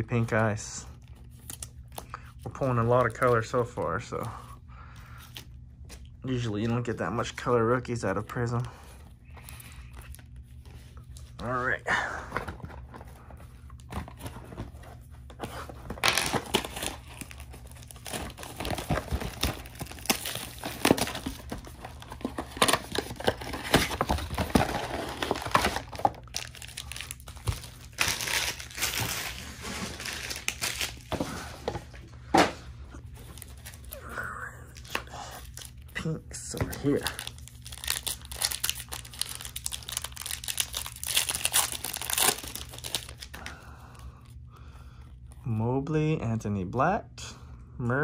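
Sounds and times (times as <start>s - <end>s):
foil packs crinkling and rustling: 9.4s - 32.0s, 34.7s - 44.0s.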